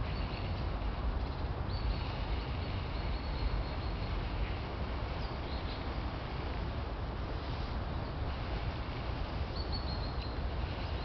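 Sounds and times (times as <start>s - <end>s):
faint high bird chirps: 9.5s - 11.0s.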